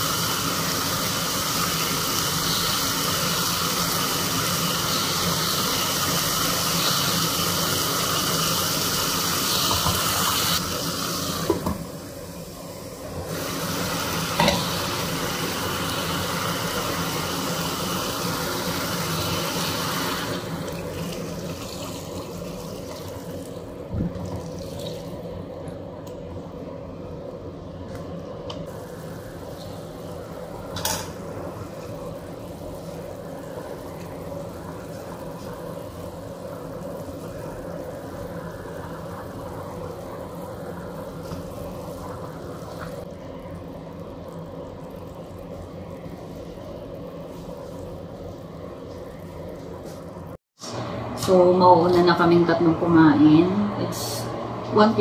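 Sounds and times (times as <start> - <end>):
food sizzling in a pot: 0.0 - 25.5, 28.7 - 50.9
low steady hum: 10.6 - 55.0
liquid pouring: 13.3 - 25.4, 28.7 - 49.9.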